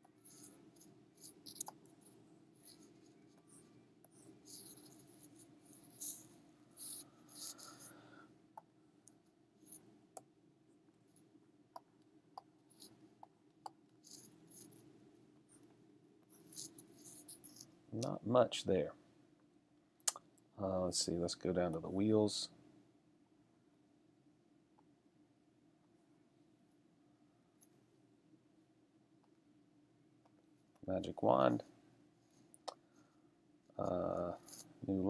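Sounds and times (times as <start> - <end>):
light scratches: 0.0 - 8.0, 14.0 - 14.9, 15.5 - 17.8, 33.8 - 35.0
low steady hum: 0.0 - 35.0.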